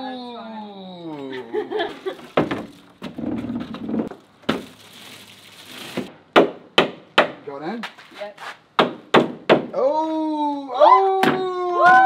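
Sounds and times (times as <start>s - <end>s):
plywood scraping on floor: 2.2s - 4.2s.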